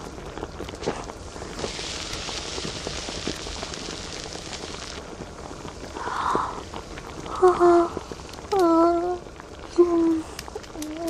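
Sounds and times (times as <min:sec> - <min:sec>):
hot wok sizzling: 0:00.0 - 0:11.0.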